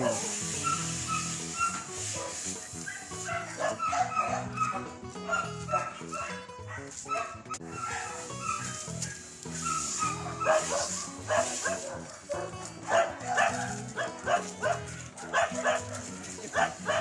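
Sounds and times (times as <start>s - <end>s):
background music: 0.0s - 17.0s
dog barking: 0.0s - 17.0s.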